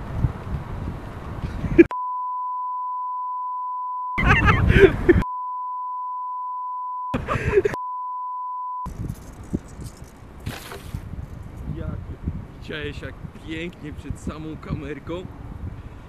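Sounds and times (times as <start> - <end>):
outdoor sound: 0.0 - 14.3
steady bleep tone: 1.9 - 4.2, 5.2 - 8.9.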